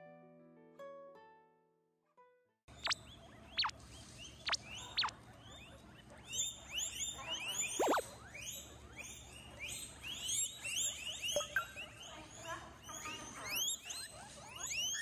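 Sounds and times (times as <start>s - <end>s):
guinea pigs squealing: 2.7s - 15.0s.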